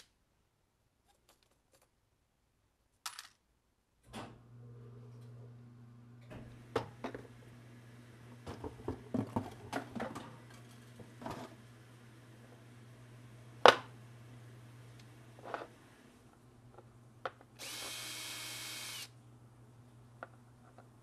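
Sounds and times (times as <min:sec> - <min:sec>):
steady low hum: 0:04.3 - 0:21.0.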